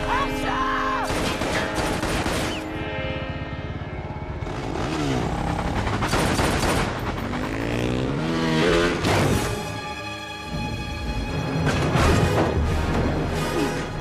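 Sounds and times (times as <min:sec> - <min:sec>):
cars and motorcycles in traffic: 0:00.0 - 0:09.9
tense orchestral music: 0:00.0 - 0:14.0.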